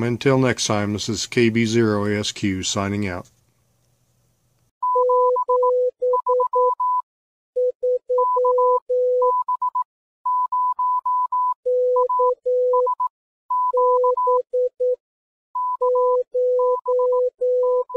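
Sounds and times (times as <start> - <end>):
morse code beeps: 4.8 - 7.0, 7.6 - 15.0, 15.6 - 17.9.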